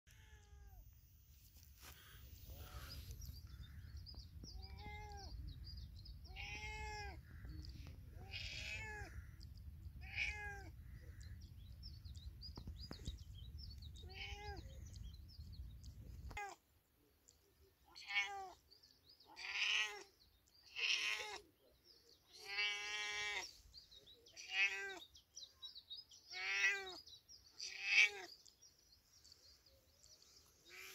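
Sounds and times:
cat meowing: 0.1 - 0.8, 4.5 - 5.4, 6.2 - 9.2, 10.0 - 10.8, 13.9 - 14.8, 16.3 - 16.6, 17.9 - 18.6, 19.3 - 20.1, 20.7 - 21.5, 22.3 - 23.5, 24.3 - 25.0, 26.3 - 27.0, 27.6 - 28.3.

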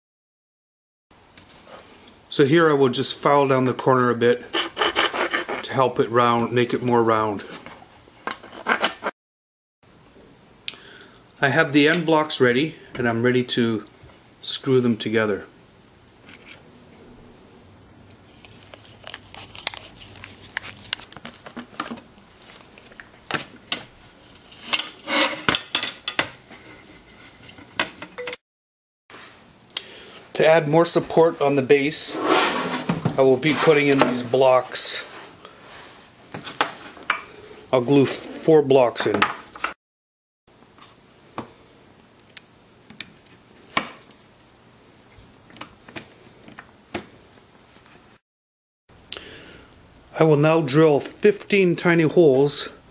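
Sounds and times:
wood knocking and scraping: 32.4 - 34.3.

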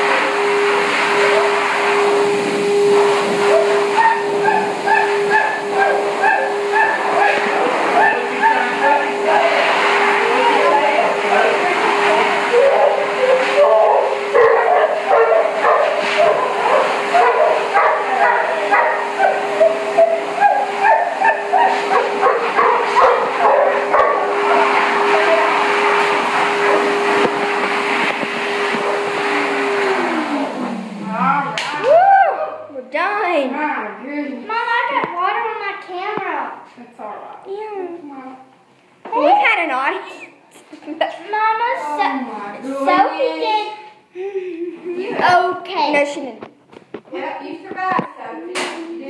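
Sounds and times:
dryer blower hum and hiss: 0.0 - 32.3
dog crying: 3.5 - 8.8, 12.5 - 25.5.

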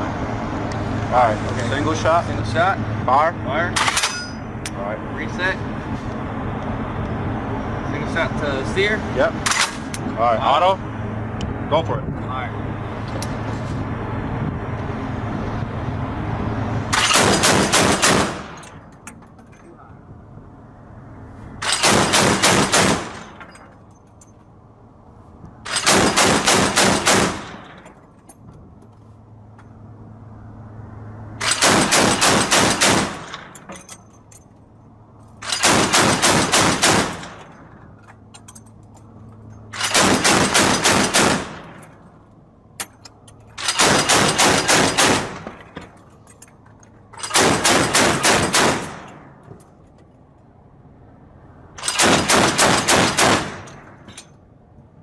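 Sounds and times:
chain gun firing bursts: 17.0 - 18.7, 21.6 - 23.4, 25.7 - 27.8, 31.4 - 33.6, 35.4 - 37.5, 39.8 - 41.8, 43.6 - 45.4, 47.2 - 49.2, 51.8 - 53.8.

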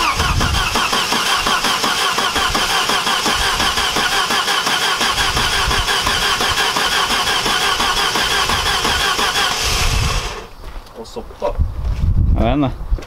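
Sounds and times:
engine cranking on starter motor: 0.0 - 10.5.

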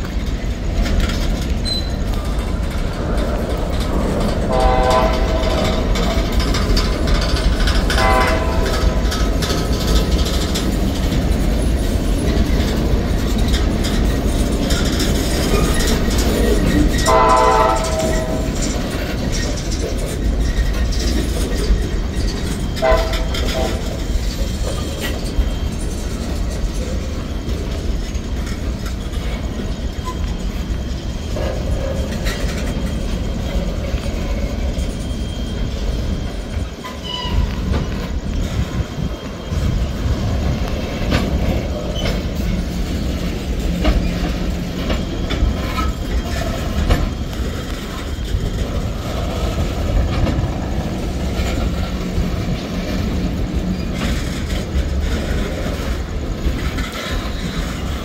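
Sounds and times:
train wheels rumbling on rail: 0.0 - 58.0
wheels clicking over rail joints: 0.0 - 58.0
faint wheel squeals: 1.6 - 2.4, 28.9 - 40.1.

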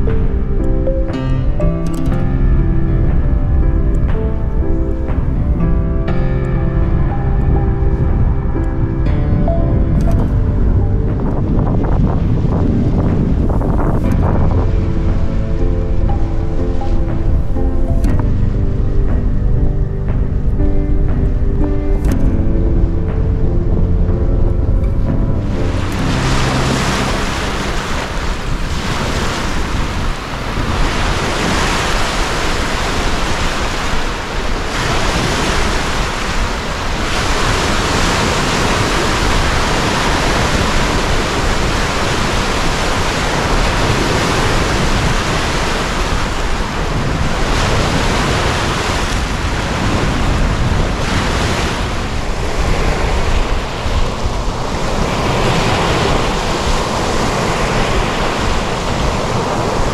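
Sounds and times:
wind on microphone: 0.0 - 59.9
waves washing over stony shore: 25.8 - 59.9.

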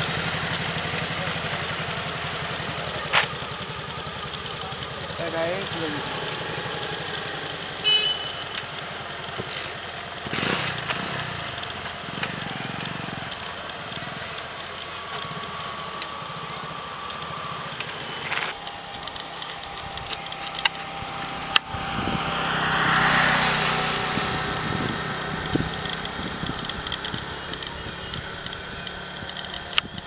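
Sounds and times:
traffic engines running: 0.0 - 30.0
vehicle passing: 8.4 - 30.0.

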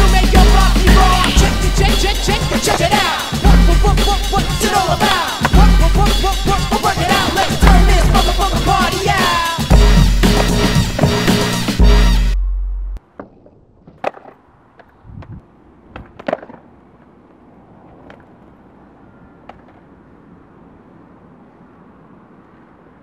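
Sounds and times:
music: 0.0 - 13.0
faint outdoor background: 0.0 - 23.0
skateboard clacks on tarmac: 5.4 - 5.7, 7.0 - 7.8, 10.2 - 11.4, 13.0 - 18.6, 19.4 - 19.9.

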